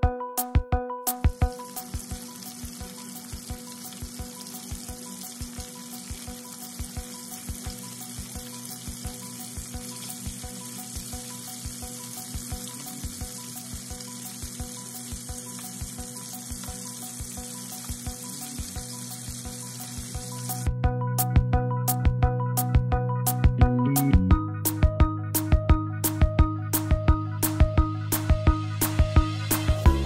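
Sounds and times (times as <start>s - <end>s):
chicken frying in oil: 1.1s - 20.7s, 26.0s - 30.0s
oil popping and crackling: 1.2s - 20.7s.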